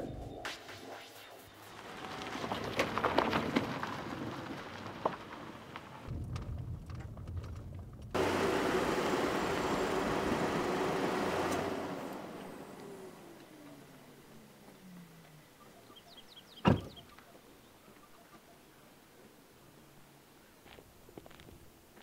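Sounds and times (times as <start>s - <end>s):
car engine and road rumble: 1.6s - 17.7s
rushing road and wind noise: 1.7s - 6.5s, 8.1s - 14.0s.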